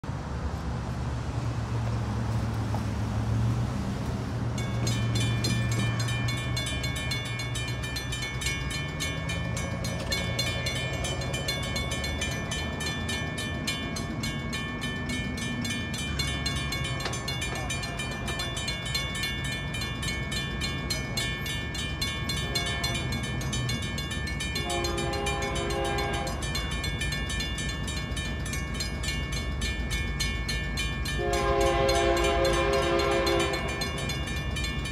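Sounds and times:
railroad crossing bells clanging: 3.3 - 34.9
distant train horn: 22.2 - 23.6, 24.4 - 26.6, 31.1 - 34.2.

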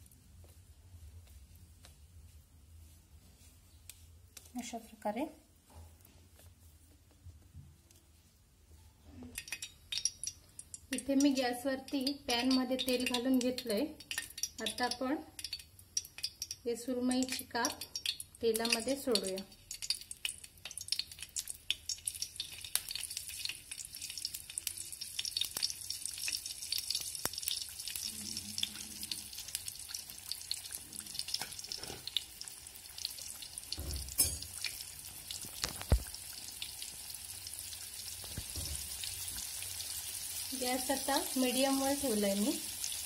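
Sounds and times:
fish frying in hot oil: 9.2 - 43.0.

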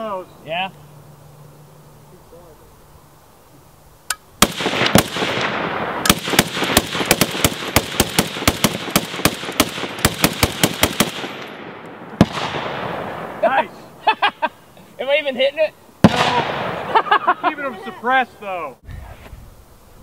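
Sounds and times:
machine gun firing: 4.4 - 13.3, 16.0 - 17.0
gunshot echo: 4.4 - 13.6, 16.0 - 17.0.

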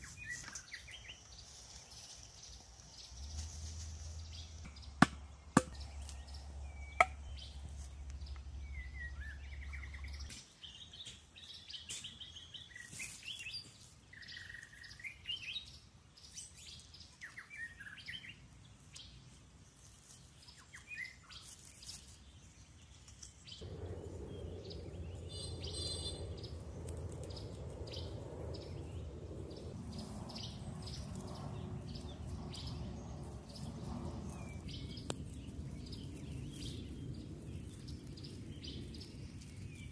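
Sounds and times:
birds chirping: 0.0 - 19.2, 20.5 - 39.9
low hum: 23.6 - 39.9.

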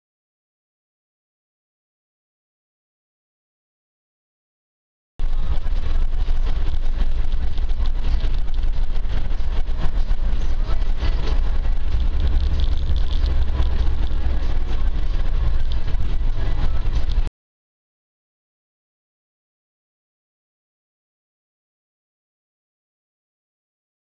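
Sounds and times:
engine and road rumble: 5.2 - 17.3.

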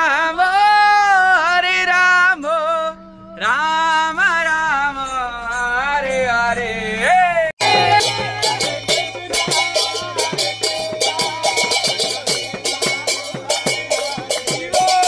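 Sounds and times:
hand cymbals ringing: 7.6 - 15.0.

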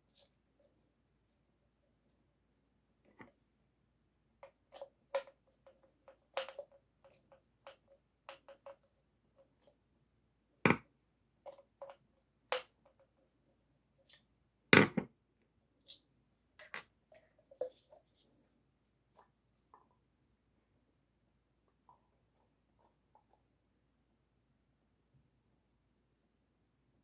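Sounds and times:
plastic clicks and taps: 4.4 - 8.8.

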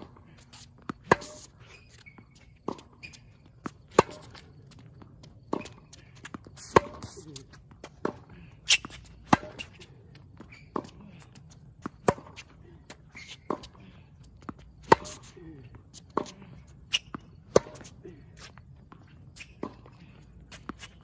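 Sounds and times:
racquets striking tennis ball: 0.0 - 13.8, 14.4 - 18.0
tennis ball bouncing: 0.0 - 13.8, 14.4 - 15.3, 15.9 - 18.0.

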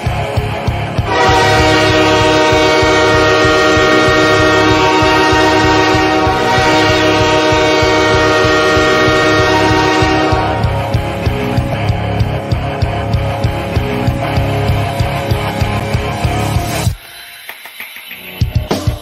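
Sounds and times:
low rhythmic rumble: 0.0 - 16.4
sustained horn-like chord: 1.0 - 11.1.

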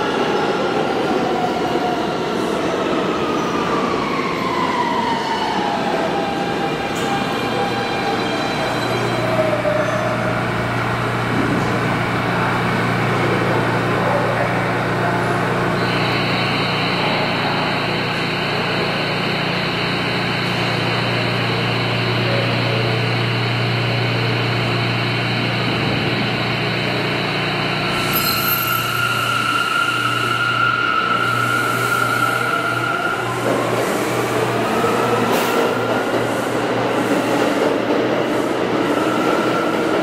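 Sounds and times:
subway train low hum: 0.0 - 40.0.

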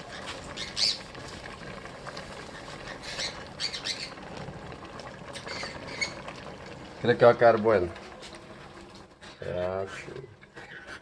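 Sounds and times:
bird squawking: 0.6 - 1.0, 2.9 - 4.2, 5.4 - 6.2.

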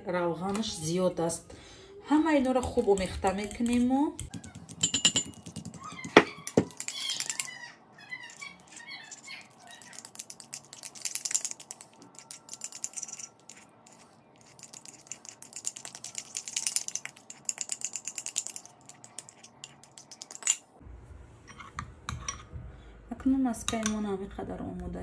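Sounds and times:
scattered clinks: 4.8 - 7.5, 8.2 - 20.6.

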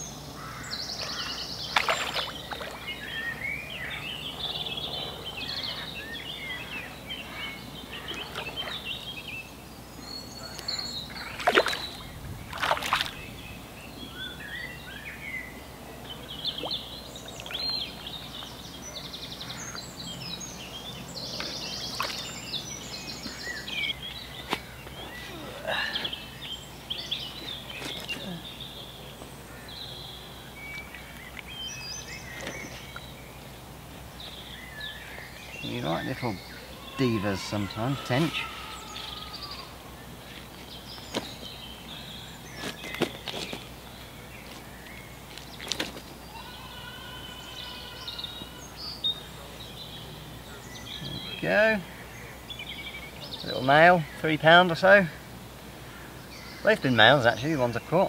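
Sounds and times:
birds singing: 0.0 - 58.0
fish splashing in water: 1.7 - 2.9, 11.2 - 13.3, 21.9 - 22.3.

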